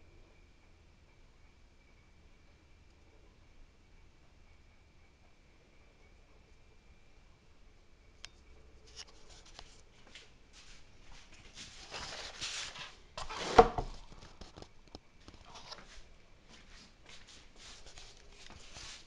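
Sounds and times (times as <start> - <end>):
rustling and light clicks: 8.2 - 13.0, 13.9 - 19.0.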